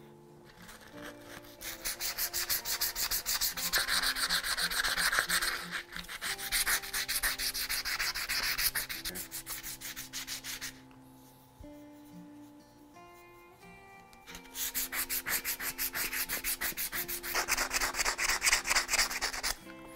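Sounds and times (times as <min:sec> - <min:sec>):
hand sanding wood: 0:00.8 - 0:10.8, 0:14.4 - 0:19.6.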